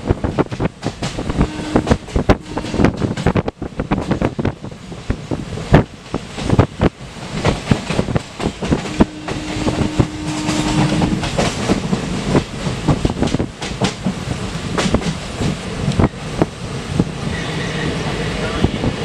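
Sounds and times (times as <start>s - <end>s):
train running rumble: 0.0s - 19.0s
wheels clattering on rails: 0.3s - 4.5s, 5.7s - 16.5s.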